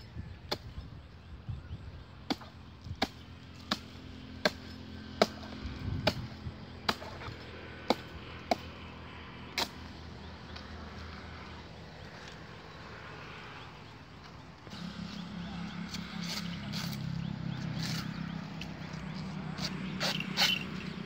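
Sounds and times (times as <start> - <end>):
blade chopping palm trunk: 2.2 - 8.8, 9.5 - 10.0.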